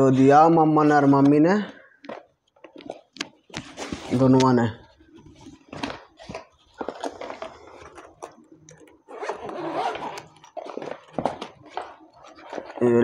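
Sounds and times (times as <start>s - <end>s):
box unpacking rustling and knocks: 5.0s - 13.0s
zip pulled open: 6.3s - 12.8s.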